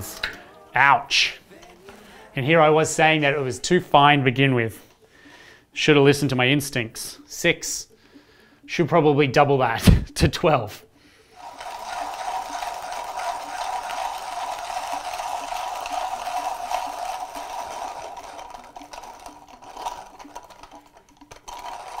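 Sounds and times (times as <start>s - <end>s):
hand grinder crushing coffee beans: 11.3s - 22.0s.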